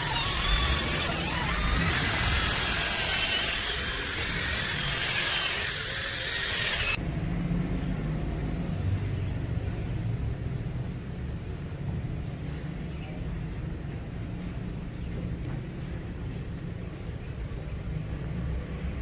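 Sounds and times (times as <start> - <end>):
cordless drill motor whining: 0.0 - 7.0.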